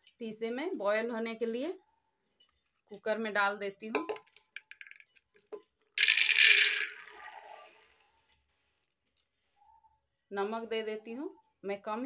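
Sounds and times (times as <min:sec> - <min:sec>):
dried peas pattering onto metal: 0:03.9 - 0:06.9.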